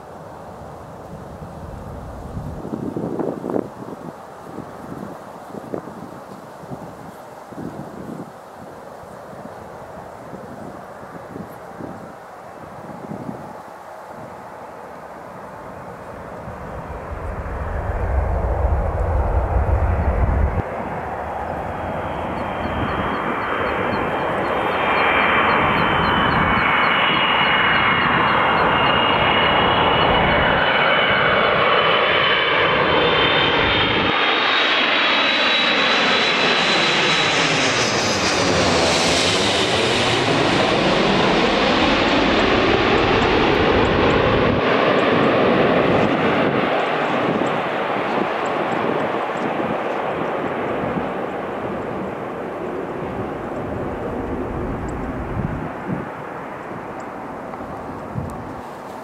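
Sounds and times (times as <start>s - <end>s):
high jet engine whine: 0.0s - 59.0s
jet airliner flying overhead: 0.0s - 59.0s
rushing jet noise: 16.1s - 59.0s.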